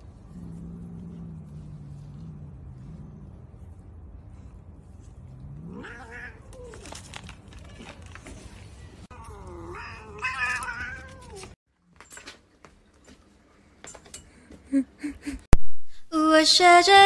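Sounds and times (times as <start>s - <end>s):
steady low hum: 0.0s - 5.8s
cat yowling: 5.7s - 6.9s, 9.1s - 11.6s.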